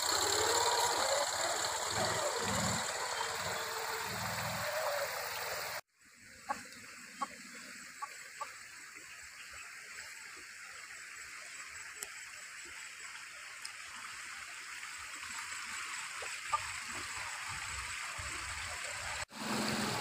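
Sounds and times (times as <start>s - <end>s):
small motorbike engine pulling away: 0.0s - 5.8s, 19.3s - 20.0s
hen clucking: 0.5s - 5.7s.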